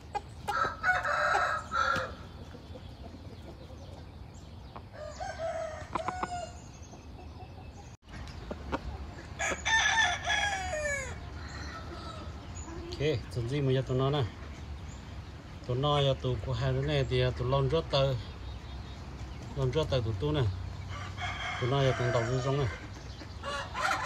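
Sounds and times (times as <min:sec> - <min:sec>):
roosters crowing: 0:00.0 - 0:07.9, 0:08.6 - 0:13.0, 0:20.2 - 0:24.0.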